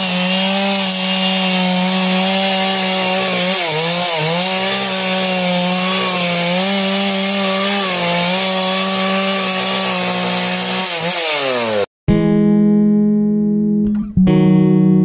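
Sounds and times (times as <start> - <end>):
chainsaw cutting log: 0.0 - 11.9.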